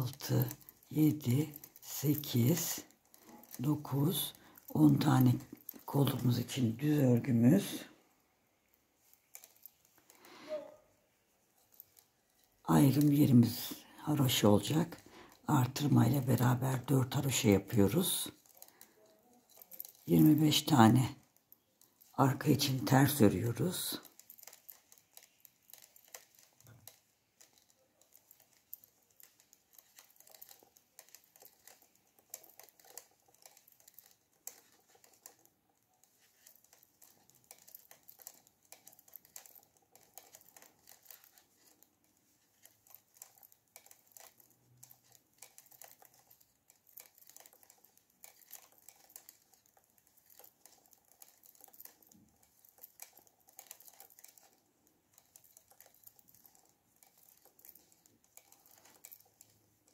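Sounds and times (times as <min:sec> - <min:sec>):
knitting needles clicking: 0:00.0 - 0:59.9.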